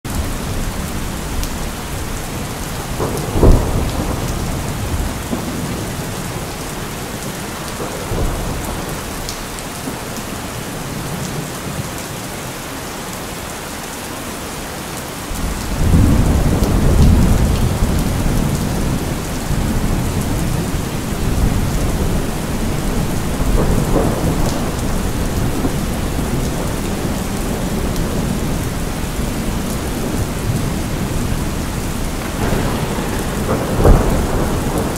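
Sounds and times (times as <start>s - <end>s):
steady rain: 0.0s - 34.9s
thunder rumbling: 0.1s - 11.8s, 15.3s - 34.9s
loud thunderclap: 2.3s - 6.8s, 7.7s - 10.0s, 15.3s - 34.9s.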